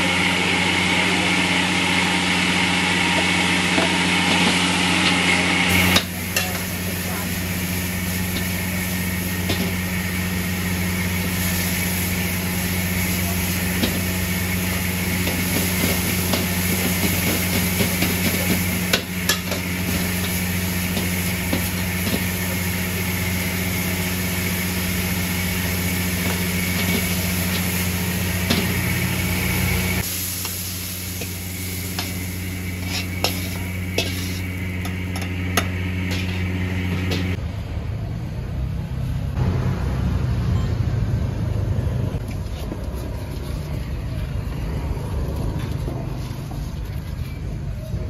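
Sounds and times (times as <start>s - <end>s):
motor hum: 1.3s - 37.4s.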